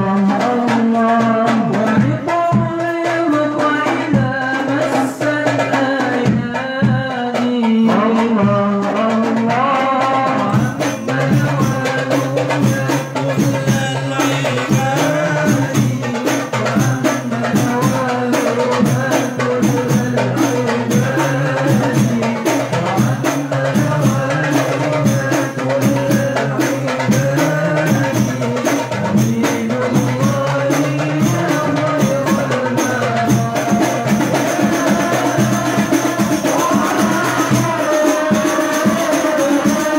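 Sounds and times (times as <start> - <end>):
frame drums beating: 0.0 - 39.9
voices singing devotional verses: 0.0 - 39.9
jingling percussion: 10.4 - 39.9.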